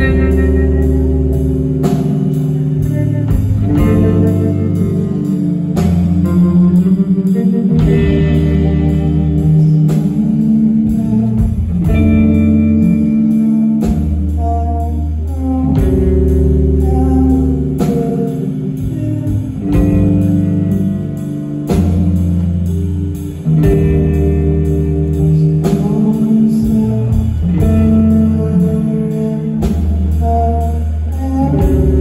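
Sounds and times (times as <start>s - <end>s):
bass: 0.0s - 32.0s
electric guitar: 0.0s - 32.0s.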